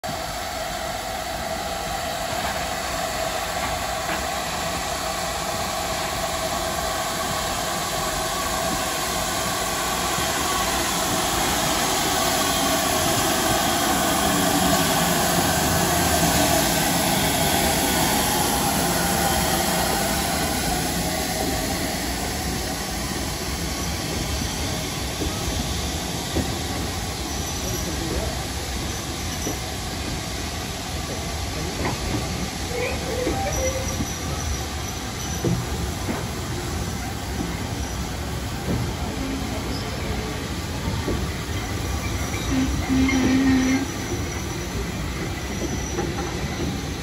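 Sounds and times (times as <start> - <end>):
steam locomotive rumble and hiss: 0.0 - 47.0.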